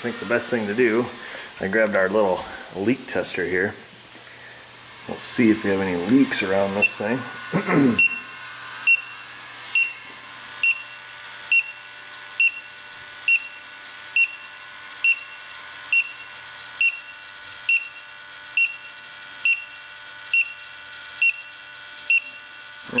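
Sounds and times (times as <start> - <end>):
leak detector beeping: 5.8 - 23.0.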